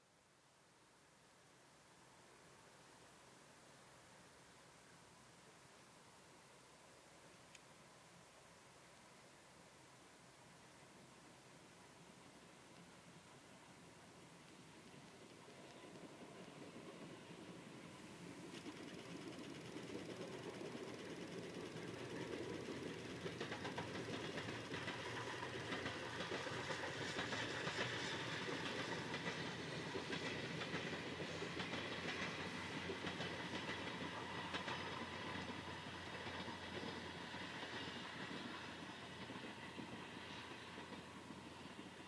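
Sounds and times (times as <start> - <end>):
train wheels clattering on rail joints: 18.5 - 42.0.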